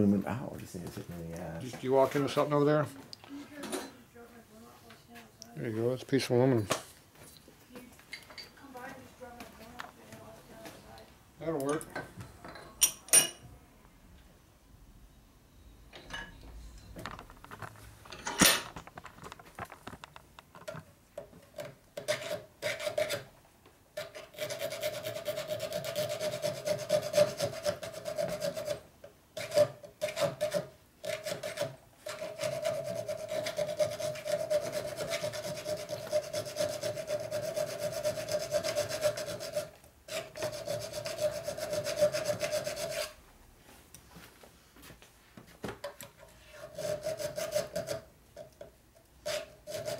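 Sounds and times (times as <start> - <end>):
hand file rasping on metal: 22.0 - 23.3, 24.0 - 28.8, 29.4 - 43.2, 46.4 - 48.1, 49.2 - 49.9.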